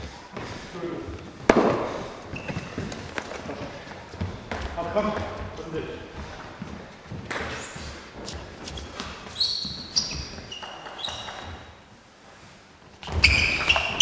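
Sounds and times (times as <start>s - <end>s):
sports shoes squeaking on floor: 0.0s - 11.9s, 13.0s - 14.0s
table tennis ball bouncing: 10.4s - 11.7s.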